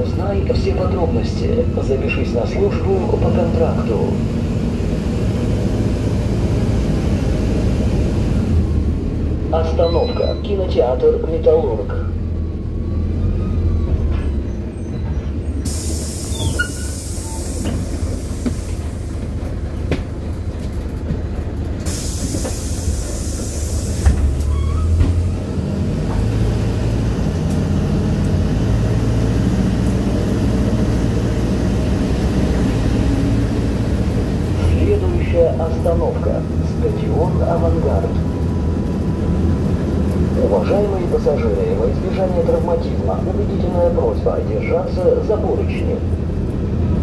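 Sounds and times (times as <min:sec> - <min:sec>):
bus engine running: 0:00.0 - 0:47.0
air hissing: 0:15.6 - 0:19.1, 0:21.8 - 0:24.3.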